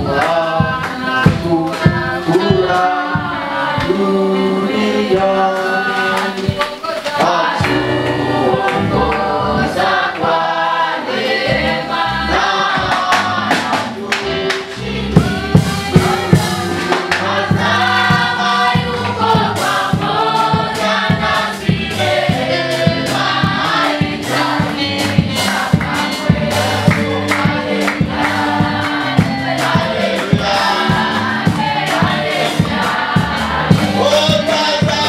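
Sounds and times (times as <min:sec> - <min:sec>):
choir singing gospel song: 0:00.0 - 0:35.0
bass notes: 0:07.6 - 0:35.0
loud percussive hits: 0:12.7 - 0:35.0.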